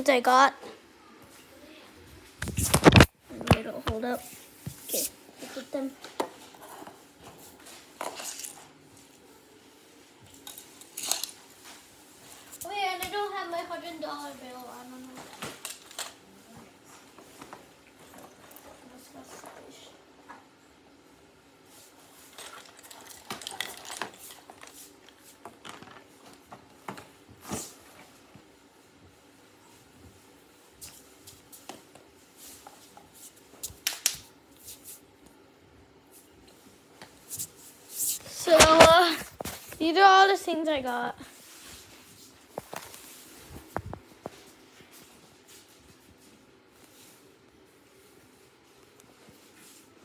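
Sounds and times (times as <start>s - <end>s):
small objects rustling and clinking: 8.0s - 8.7s, 10.3s - 11.4s, 22.3s - 26.1s.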